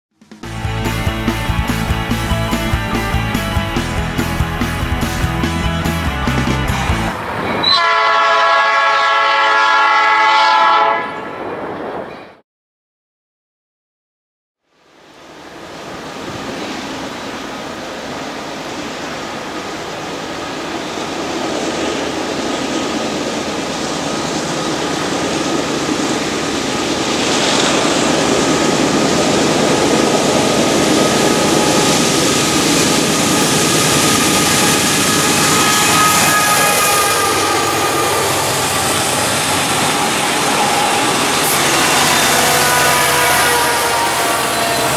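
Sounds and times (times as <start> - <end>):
freight train rumble: 0.2 - 12.4, 14.9 - 44.9
high steady ringing: 31.8 - 43.0.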